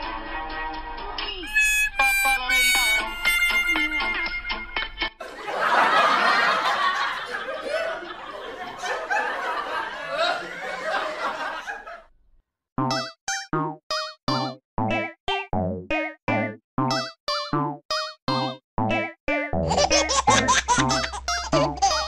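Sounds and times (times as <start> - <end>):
music: 0.0 - 5.2, 12.9 - 22.0
comic wobbling music notes: 1.4 - 4.6, 18.4 - 22.0
laughter: 5.2 - 12.1, 19.7 - 22.0.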